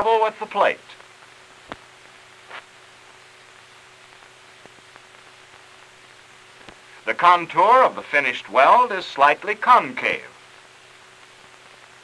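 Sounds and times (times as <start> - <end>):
faint low hum: 0.0 - 12.0
film soundtrack hiss: 0.0 - 12.0
soft clicks and pops: 1.0 - 2.8, 4.1 - 5.9, 6.6 - 6.9.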